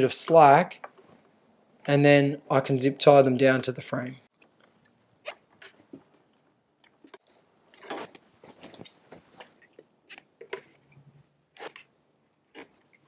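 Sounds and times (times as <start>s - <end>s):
scratchy rustles of wiring: 4.3s - 11.9s.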